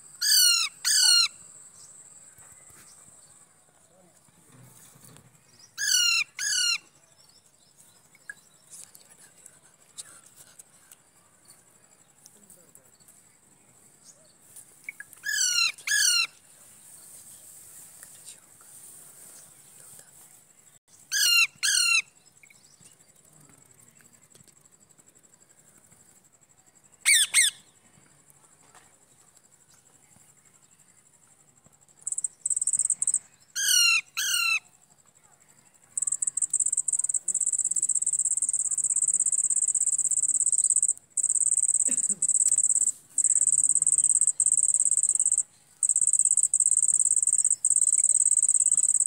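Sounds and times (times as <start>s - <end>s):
parakeet squawks and screeches: 0.2s - 1.3s, 5.8s - 6.8s, 15.3s - 16.3s, 21.1s - 22.0s, 27.1s - 27.6s, 33.6s - 34.6s
high insect trill: 14.4s - 49.0s.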